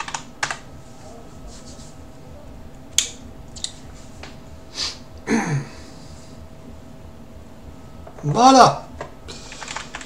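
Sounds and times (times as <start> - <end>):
faint steady hum: 0.0 - 10.0
short breathy hiss: 4.7 - 5.0.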